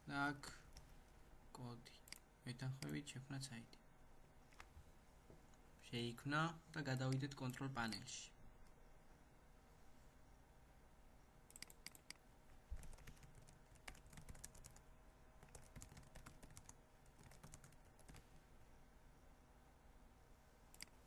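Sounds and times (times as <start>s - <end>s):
typing on computer keyboard: 11.5s - 12.2s, 12.8s - 14.8s, 15.4s - 18.3s.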